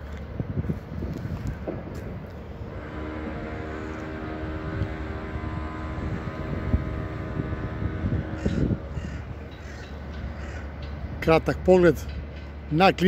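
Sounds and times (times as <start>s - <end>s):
engine drone with low rumble: 0.0s - 13.0s
steady tones: 2.4s - 13.0s
crow caws: 8.4s - 10.7s.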